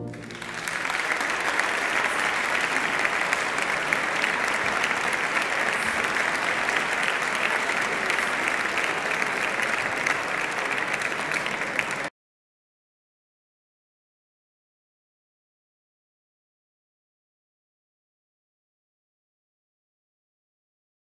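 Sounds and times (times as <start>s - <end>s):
audience applauding: 0.0s - 12.1s.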